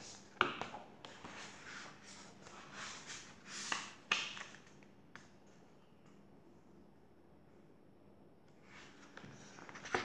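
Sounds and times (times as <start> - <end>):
book pages rustling: 8.6 - 10.0.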